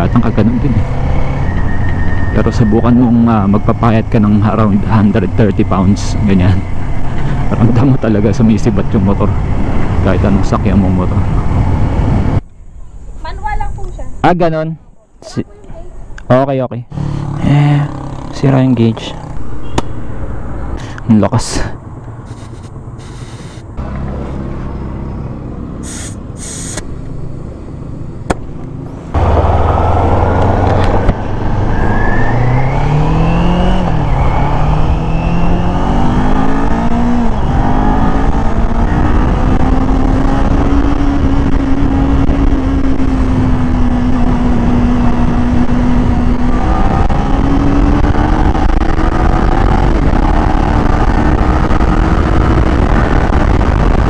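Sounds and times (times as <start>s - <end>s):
motorcycle engine accelerating: 0.0s - 12.4s, 16.9s - 21.0s, 21.8s - 54.0s
wind noise: 0.0s - 14.2s, 29.2s - 54.0s
air hose hissing: 22.3s - 23.7s, 25.8s - 26.9s.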